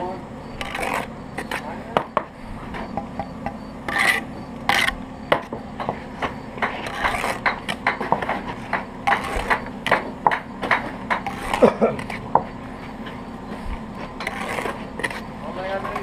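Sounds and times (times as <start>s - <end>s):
steady low hum: 0.0s - 16.0s
trowel scraping wet mortar: 0.5s - 2.0s, 3.8s - 16.0s
bricks rasped into mortar: 0.6s - 2.2s, 3.8s - 12.5s, 13.7s - 16.0s.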